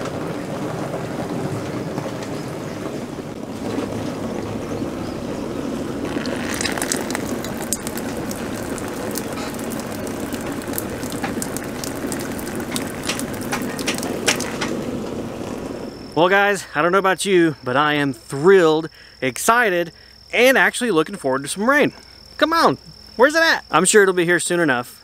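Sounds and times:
water rushing into barrels: 0:00.0 - 0:16.3
water drips and ticks: 0:03.6 - 0:15.2.

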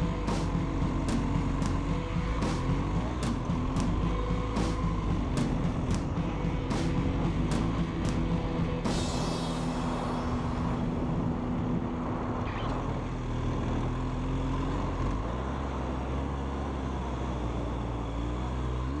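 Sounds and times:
motorcycle engine running: 0:00.0 - 0:19.0
wind and riding noise: 0:00.0 - 0:19.0.

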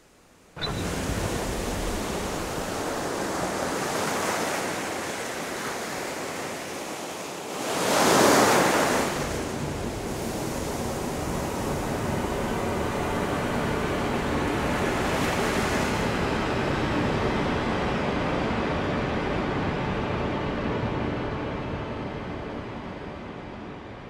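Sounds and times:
rushing water like surf: 0:00.6 - 0:18.4.

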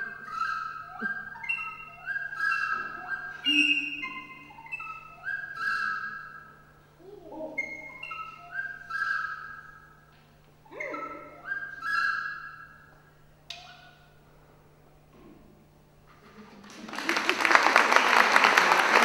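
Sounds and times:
recorder playing: 0:00.0 - 0:06.8, 0:07.4 - 0:13.9.

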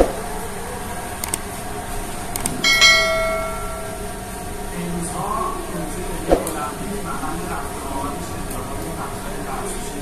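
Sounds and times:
steady background hum: 0:00.0 - 0:10.0.

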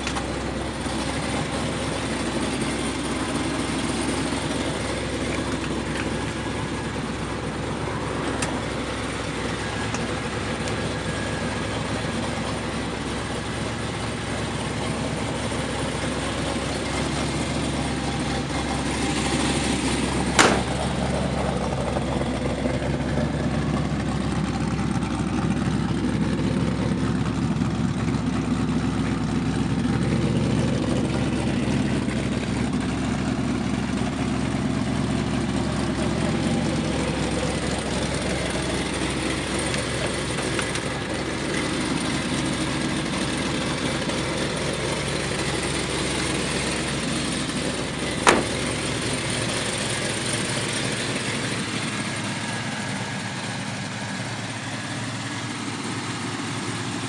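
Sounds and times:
car engine idling: 0:00.0 - 0:57.0
sharp knock: 0:20.4 - 0:20.8, 0:48.2 - 0:48.6.

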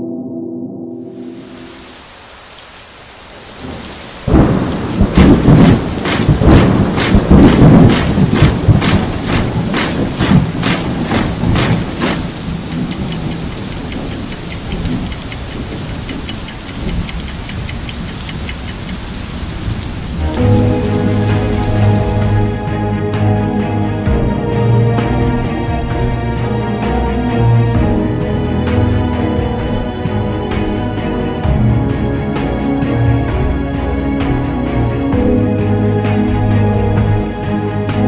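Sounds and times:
rain hissing: 0:01.1 - 0:22.8
thunderclap rumbling: 0:03.3 - 0:22.8.

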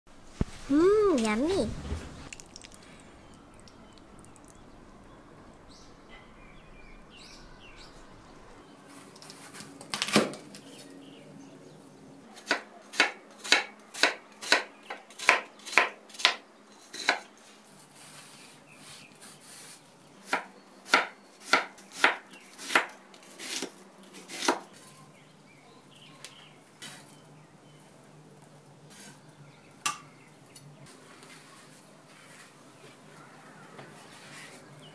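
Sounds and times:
knife chopping onion on board: 0:12.4 - 0:17.3, 0:20.2 - 0:24.6.

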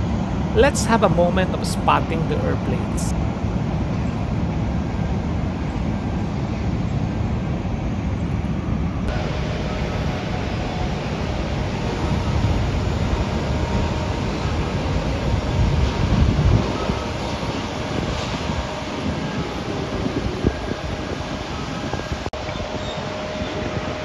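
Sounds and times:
faint engine whine: 0:00.0 - 0:24.0
jet aircraft rumble: 0:00.0 - 0:24.0
wind on microphone: 0:09.0 - 0:24.0.

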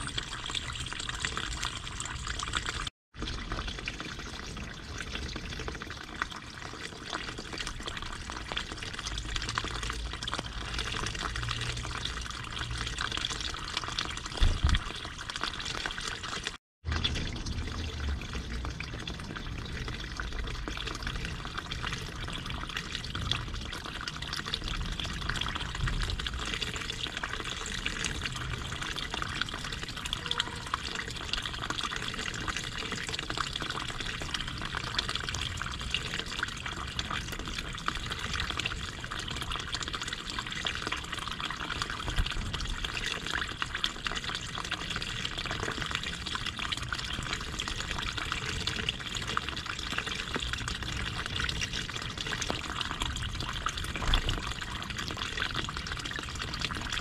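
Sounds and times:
stream water trickling: 0:00.0 - 0:57.0.

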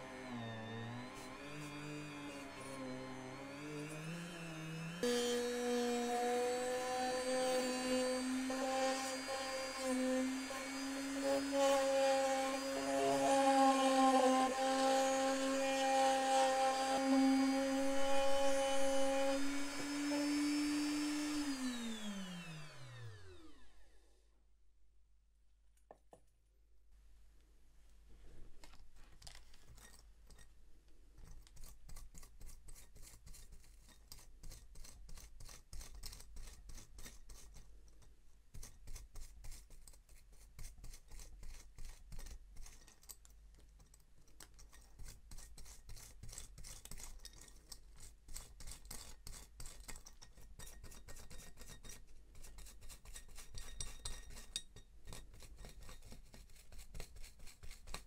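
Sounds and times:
brush scrubbing metal: 0:31.2 - 0:58.0.

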